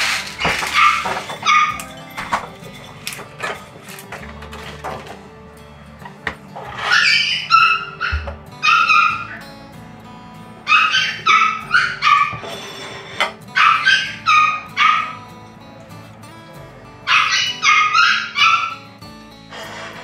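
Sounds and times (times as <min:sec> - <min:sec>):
background music: 0:00.0 - 0:20.0
dog barking in high-pitched yips: 0:06.9 - 0:09.4, 0:10.7 - 0:12.4, 0:13.6 - 0:15.2, 0:17.1 - 0:18.8.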